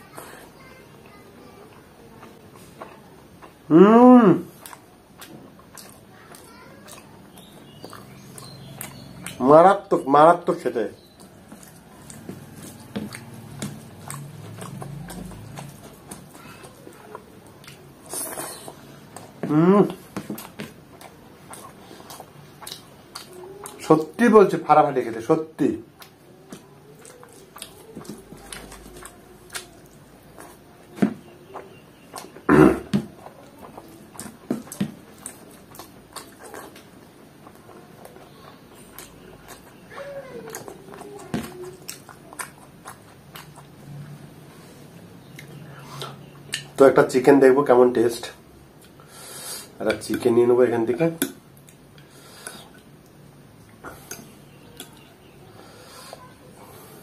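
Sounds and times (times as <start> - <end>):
close-up chewing: 0.0 - 3.8, 4.4 - 24.8, 25.8 - 46.9, 48.6 - 57.0
wet mouth clicks and lip smacks: 20.2 - 23.8, 45.2 - 46.8, 52.4 - 55.0
mouth clicks: 45.2 - 46.8, 51.2 - 55.2
wet lip smacks: 45.3 - 46.8.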